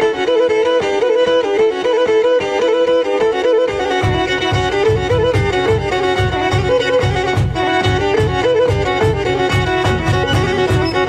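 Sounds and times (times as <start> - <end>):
fast fiddle melody: 0.0 - 11.0
steady low beat: 3.8 - 11.0.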